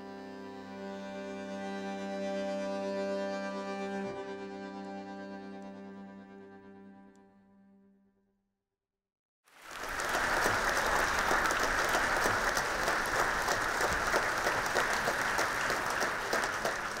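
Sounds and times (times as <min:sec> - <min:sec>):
audience applauding: 0:09.5 - 0:17.0.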